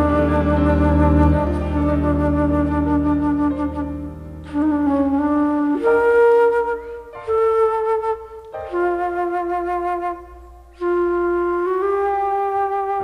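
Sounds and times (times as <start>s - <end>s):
quiet bass: 0.0s - 5.8s
jazz flute melody: 0.0s - 13.0s.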